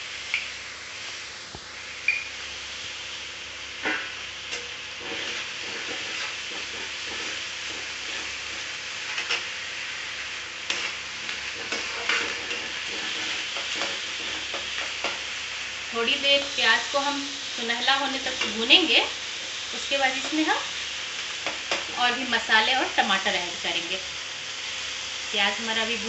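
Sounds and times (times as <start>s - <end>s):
onions sizzling in hot oil: 0.0s - 26.0s
spatula scraping and knocking pan: 3.8s - 9.6s, 10.6s - 15.4s.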